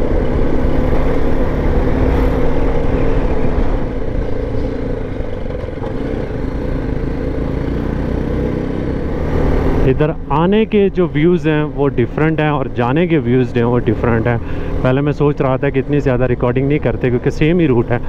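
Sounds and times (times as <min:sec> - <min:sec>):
motorcycle engine running: 0:00.0 - 0:10.8
road and wind noise: 0:00.0 - 0:18.0.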